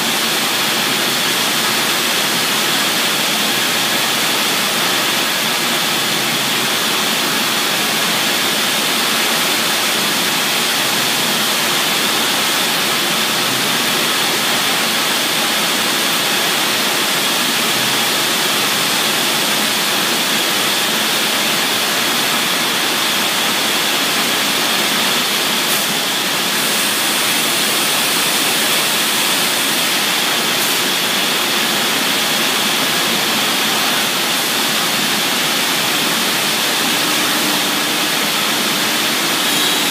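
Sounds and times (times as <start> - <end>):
router spindle milling wood: 32.6 - 39.9.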